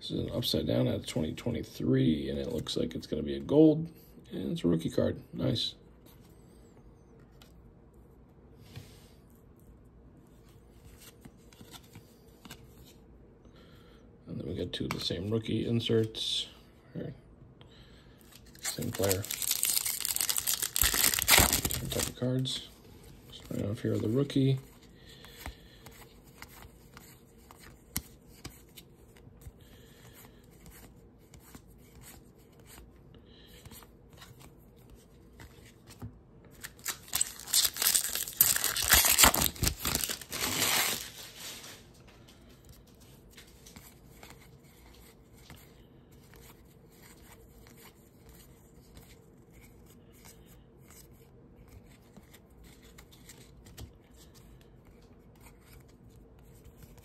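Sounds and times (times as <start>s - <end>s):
foil wrapper tearing: 18.5s - 22.2s, 36.6s - 41.5s.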